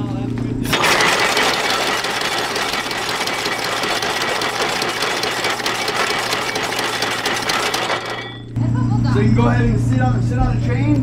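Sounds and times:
core drilling machine clattering: 0.7 - 8.6.

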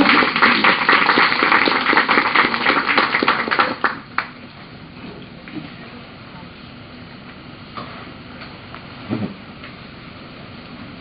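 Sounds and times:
crowd applauding: 0.0 - 4.4.

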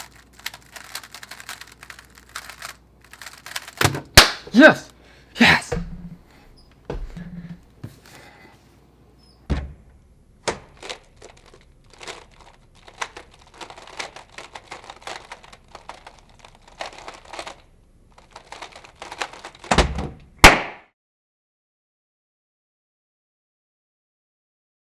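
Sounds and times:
puzzle cube plastic clicks: 0.0 - 4.2, 10.4 - 19.7.

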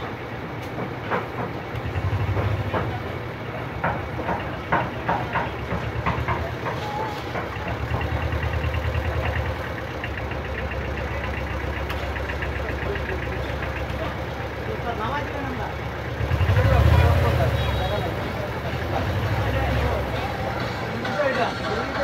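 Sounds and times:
engine idling with pulsing beat: 0.0 - 22.0.

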